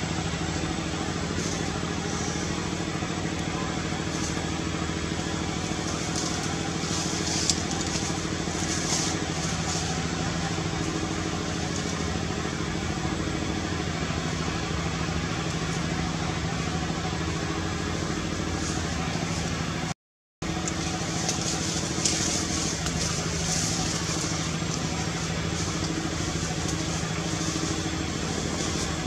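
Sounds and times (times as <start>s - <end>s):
engine idling: 0.0s - 29.0s.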